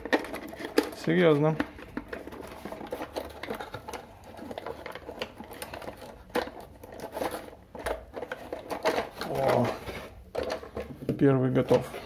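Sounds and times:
plastic packaging rustling: 0.0 - 12.0.

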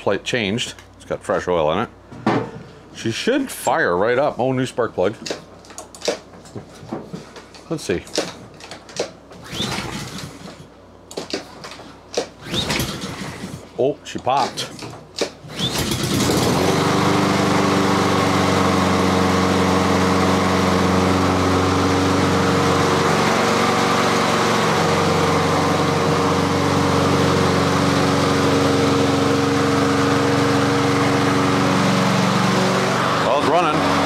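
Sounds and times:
lawn mower engine running: 15.5 - 34.0.

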